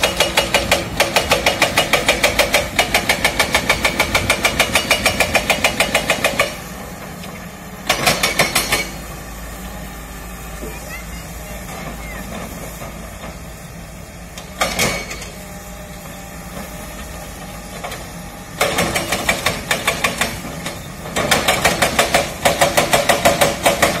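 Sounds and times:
hydraulic breaker hammering rock: 0.0 - 6.9, 7.8 - 9.1, 14.3 - 24.0
diesel engine running: 0.0 - 24.0.

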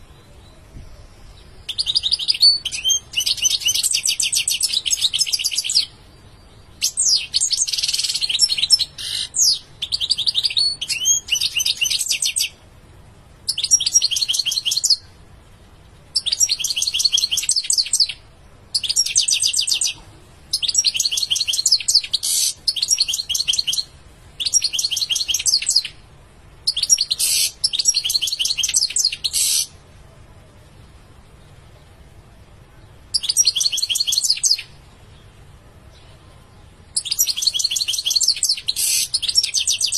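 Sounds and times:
goldfinch singing: 1.3 - 12.6, 13.5 - 15.1, 16.2 - 26.0, 26.6 - 29.8, 33.1 - 34.8, 37.0 - 39.9.

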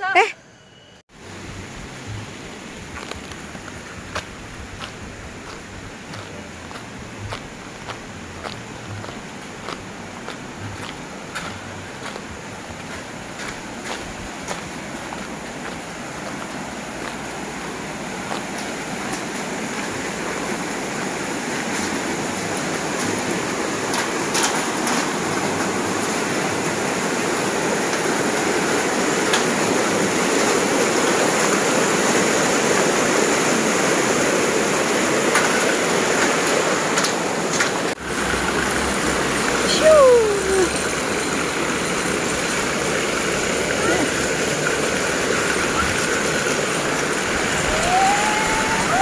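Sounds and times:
stream rushing over rocks: 1.1 - 49.0.

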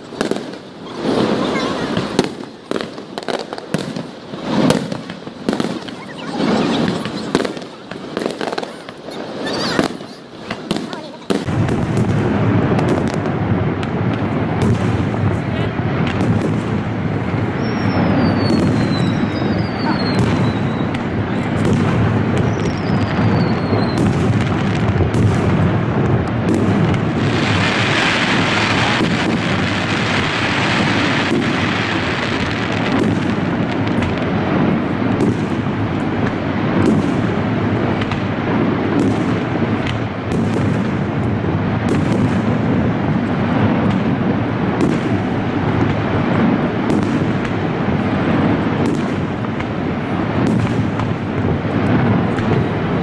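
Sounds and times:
falling firework whistles: 0.0 - 12.2, 16.1 - 25.5
continuous rumble: 0.0 - 27.4
fireworks booms and bangs: 0.0 - 53.0
hissing crackle: 0.0 - 53.0.

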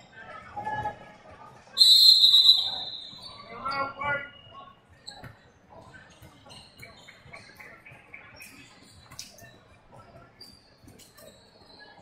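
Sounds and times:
shoes squeaking on court floor: 2.5 - 12.0.

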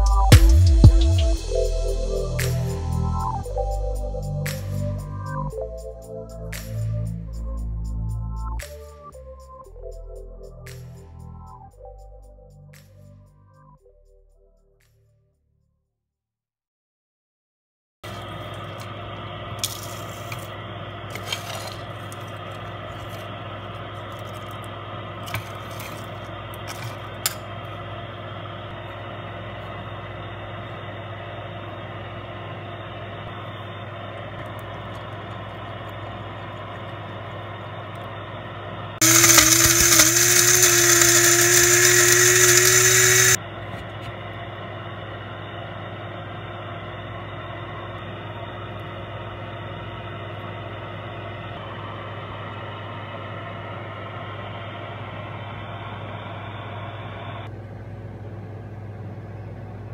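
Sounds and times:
spice grinder motor whirring: 39.0 - 43.4.

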